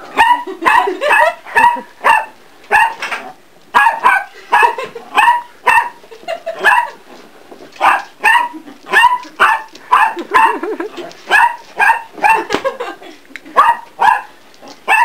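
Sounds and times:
dog barking: 0.2s - 3.1s, 3.8s - 6.0s, 6.6s - 7.0s, 7.8s - 10.7s, 11.3s - 12.5s, 13.6s - 14.3s.

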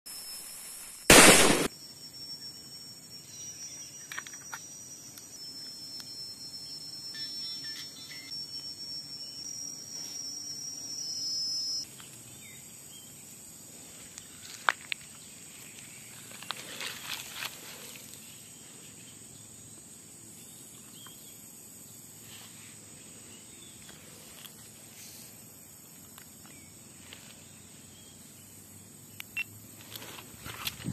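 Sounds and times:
high insect drone: 0.1s - 30.9s
firecracker bang: 1.1s - 1.7s.

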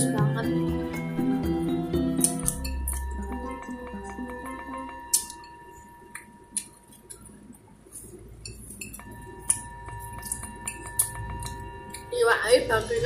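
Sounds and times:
faint background music: 0.0s - 13.0s
dishes clinking: 8.4s - 12.1s.

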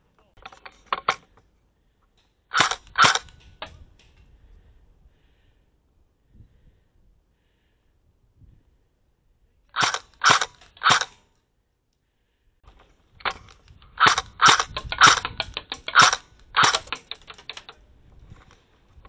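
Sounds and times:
small clicks: 0.4s - 1.5s, 2.1s - 4.3s, 12.7s - 19.0s
airsoft gun shots: 2.5s - 3.4s, 9.8s - 11.2s, 14.0s - 17.6s.

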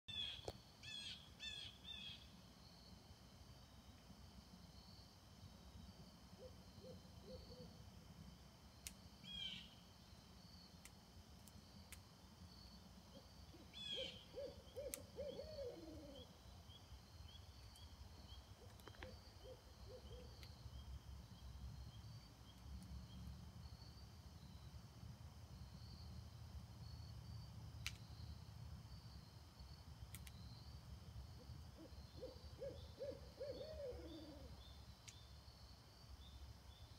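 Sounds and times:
owl hooting: 0.1s - 2.2s, 6.4s - 7.8s, 9.2s - 9.8s, 13.1s - 16.4s, 18.6s - 20.4s, 31.4s - 34.6s.

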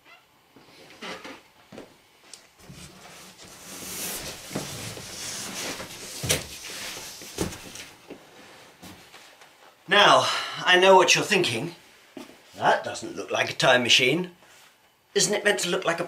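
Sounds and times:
cardboard box scraping across floor: 2.6s - 7.9s.

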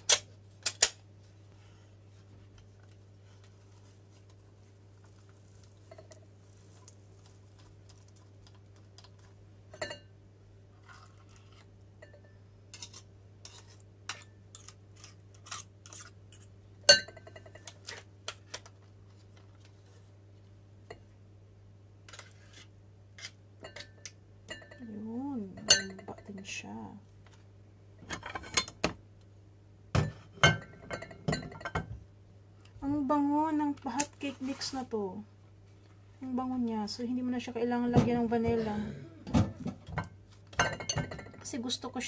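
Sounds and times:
metal utensils clinking on glass bowl: 9.7s - 10.1s, 16.9s - 17.7s, 25.6s - 26.3s.

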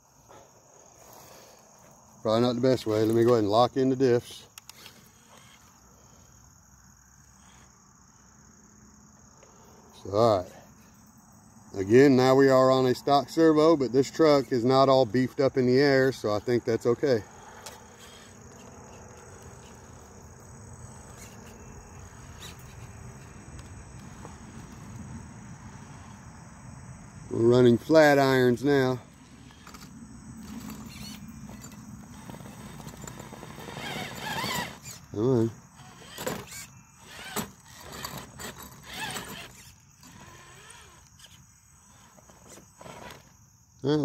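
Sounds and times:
crickets chirping: 0.0s - 44.0s
electric motor whining in bursts: 17.0s - 22.9s, 29.1s - 43.2s.

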